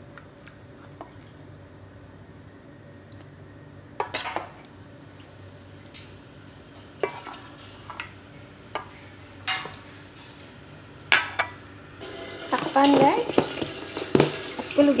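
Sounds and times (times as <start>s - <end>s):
kitchenware clinking on plastic tub: 12.3s - 15.0s.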